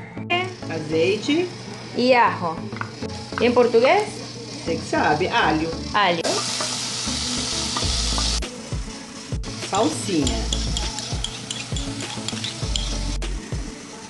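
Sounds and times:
onion sizzling in hot oil: 0:00.5 - 0:14.0
wooden spoon scraping a pot: 0:11.0 - 0:13.0.

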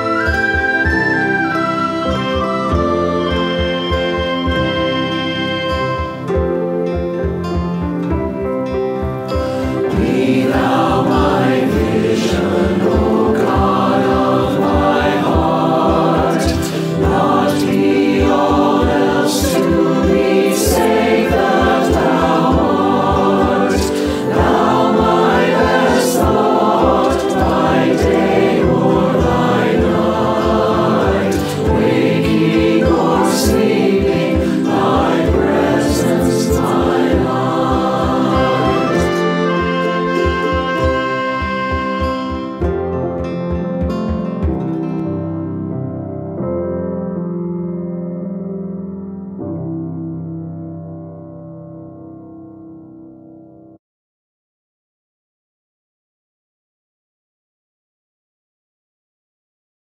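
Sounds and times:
choir singing a hymn: 0:00.0 - 0:06.2, 0:09.4 - 0:42.3
instrumental accompaniment: 0:00.0 - 0:46.5.

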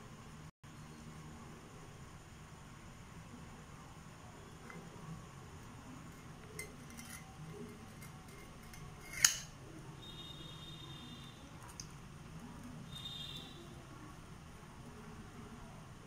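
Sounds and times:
metal bowl clinking: 0:06.1 - 0:09.6.

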